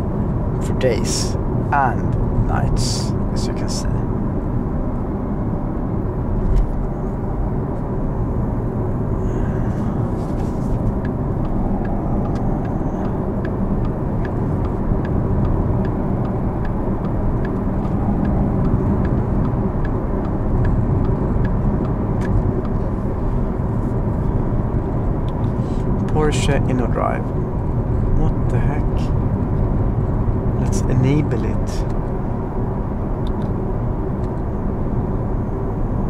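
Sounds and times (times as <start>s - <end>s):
faint regular ticking: 10.9s - 22.8s.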